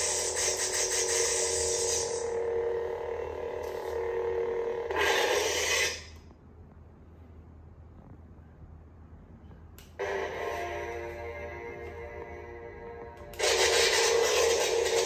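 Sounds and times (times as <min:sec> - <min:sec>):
lightsaber humming: 0:00.0 - 0:06.3, 0:10.0 - 0:15.0.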